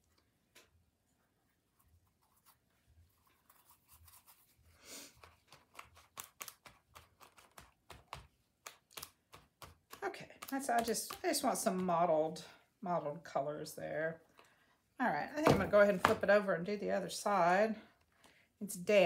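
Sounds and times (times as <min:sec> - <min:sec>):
paper towel dabbing paint: 0:01.2 - 0:12.1
paintbrush scratching on paper: 0:01.5 - 0:06.0.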